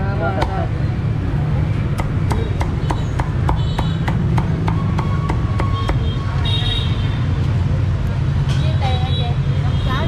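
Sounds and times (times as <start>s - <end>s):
cleaver chopping on wooden block: 1.9s - 6.0s.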